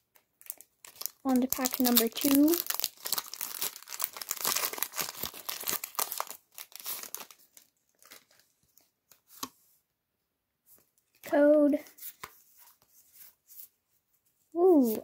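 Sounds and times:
foil wrapper crinkling: 0.1 - 8.5.

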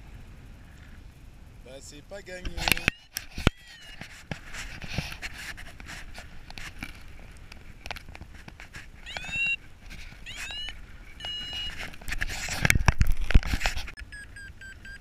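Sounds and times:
wind buffeting microphone clicks: 2.1 - 14.1
variometer beeping chirps: 9.0 - 9.6, 10.2 - 11.8, 14.0 - 15.0.

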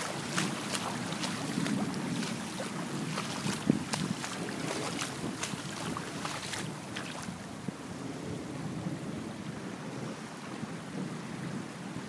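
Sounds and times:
floodwater rushing: 0.0 - 7.6
wind buffeting microphone: 0.0 - 12.0.

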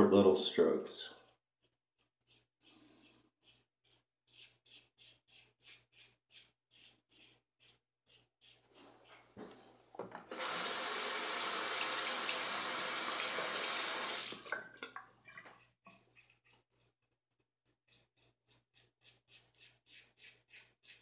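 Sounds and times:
sink tap running: 10.0 - 14.9.

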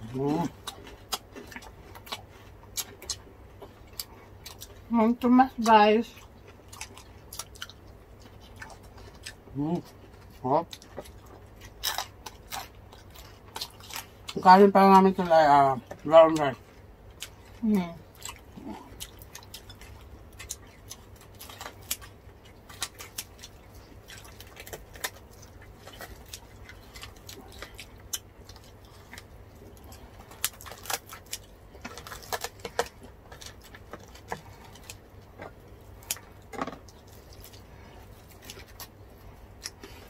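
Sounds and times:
scissors cutting crunchy pork skin: 30.4 - 34.9.

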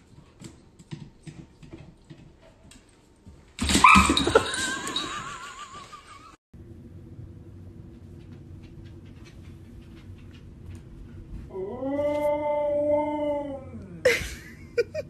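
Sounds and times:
dog claws clicking on wooden floor: 0.0 - 4.4.

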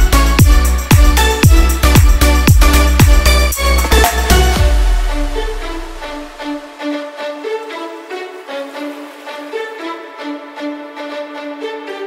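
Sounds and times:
electronic music with kick drum: 0.0 - 9.6.

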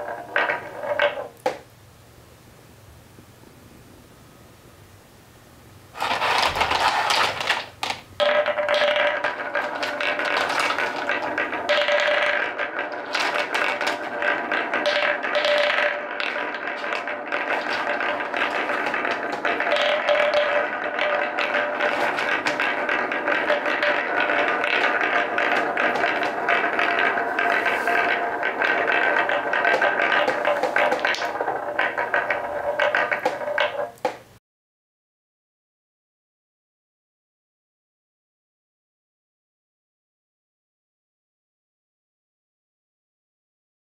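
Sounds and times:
wooden balls rolling and clacking: 0.0 - 1.7, 6.0 - 34.4.

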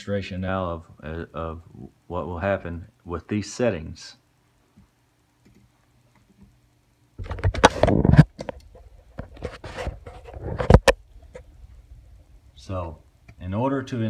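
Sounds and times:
faint hum: 0.0 - 14.0
computer keyboard and mouse clicks: 5.4 - 6.5
camera handling rustling and knocks: 7.2 - 11.5.

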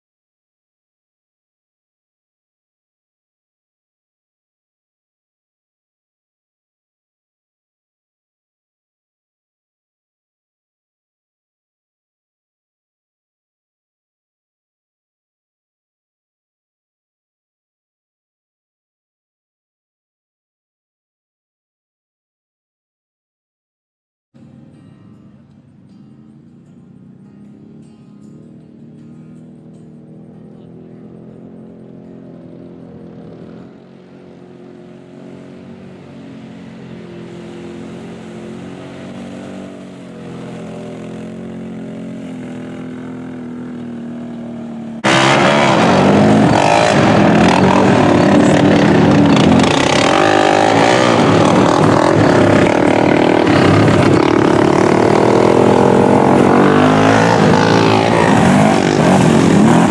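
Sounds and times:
atv engine running: 24.4 - 59.9
four-wheeler engine revving in mud: 28.4 - 59.9.

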